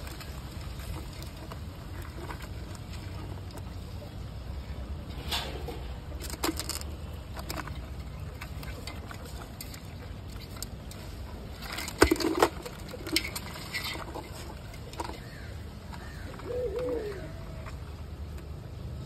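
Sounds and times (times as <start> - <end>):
crab shells clicking and scraping: 0.0 - 4.0, 5.5 - 18.6
low steady rumble: 0.0 - 19.0.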